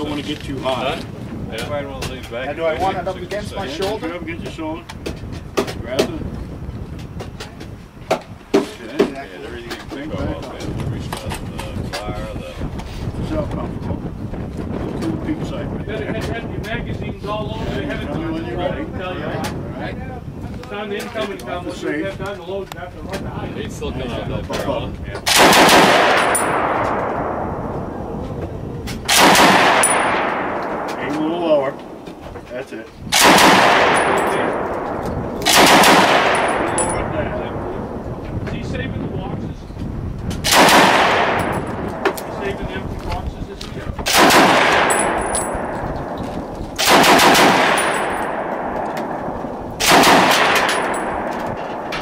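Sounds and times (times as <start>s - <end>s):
automatic rifle bursts: 25.3s - 26.6s, 35.4s - 36.8s, 46.8s - 48.2s, 49.8s - 51.4s
automatic rifle bursts echoing: 33.2s - 37.1s, 44.1s - 52.0s.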